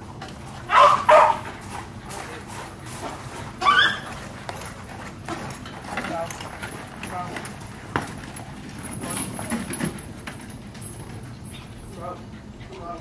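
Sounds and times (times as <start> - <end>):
dog barking: 0.7 - 1.4, 3.6 - 4.0.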